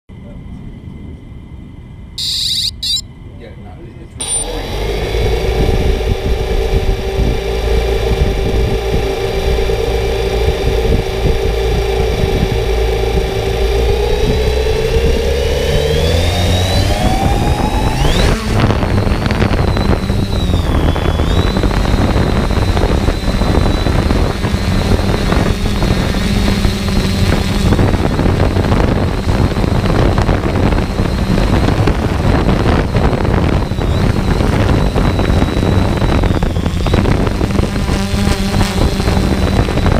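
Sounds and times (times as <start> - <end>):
engine whining: 0.1 - 39.9
loud rushing noise: 4.4 - 26.2.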